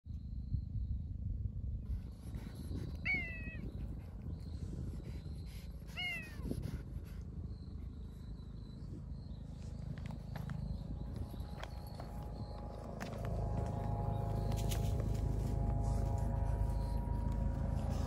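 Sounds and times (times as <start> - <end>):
steady low rumble: 0.1 - 18.0
cat meowing: 3.0 - 3.6, 5.9 - 6.4.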